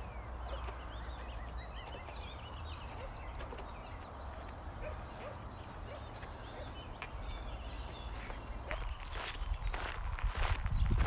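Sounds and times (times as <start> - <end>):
footsteps on wooden boards: 0.0 - 5.0
small birds chirping: 0.0 - 11.0.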